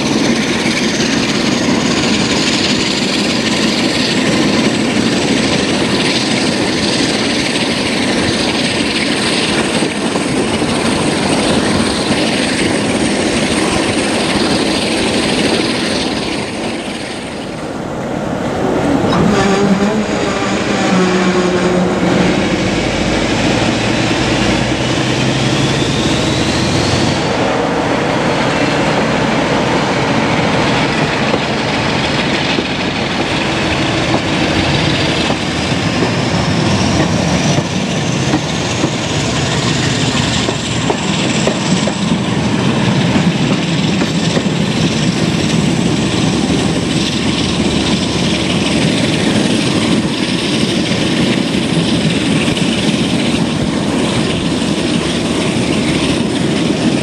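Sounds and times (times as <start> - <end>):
wind noise: 0.0 - 57.0
wheels on rails: 28.2 - 57.0.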